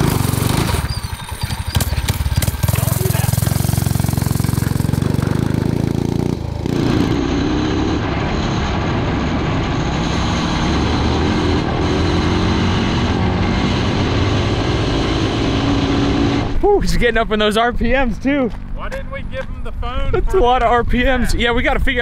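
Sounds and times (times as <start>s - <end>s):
motorcycle engine at high revs: 0.0s - 16.6s.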